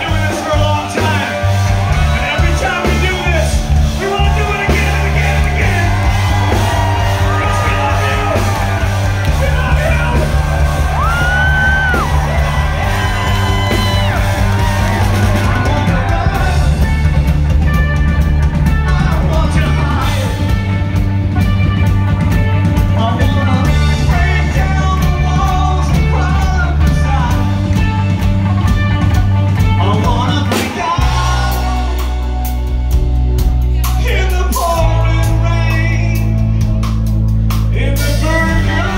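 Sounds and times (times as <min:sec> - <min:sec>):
person yelling singing: 0:00.0 - 0:17.2, 0:18.8 - 0:20.5, 0:29.8 - 0:32.3, 0:37.7 - 0:38.9
bass guitar: 0:00.0 - 0:38.9
drums: 0:00.0 - 0:38.9
electric guitars: 0:00.0 - 0:38.9.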